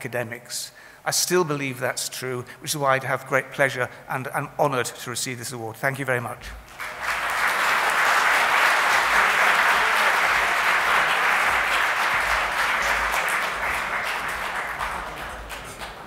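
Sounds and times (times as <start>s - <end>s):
audience applauding: 6.7s - 16.0s.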